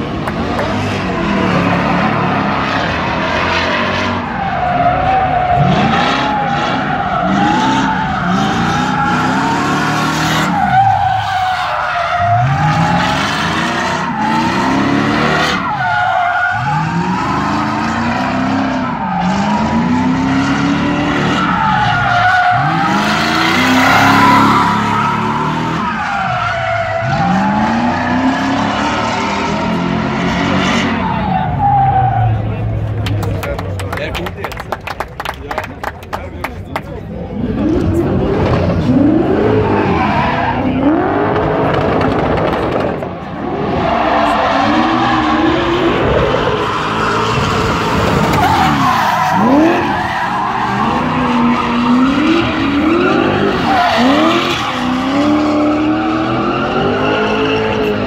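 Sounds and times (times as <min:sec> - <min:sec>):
car engine revving: 0:00.0 - 0:33.8, 0:36.9 - 0:58.0.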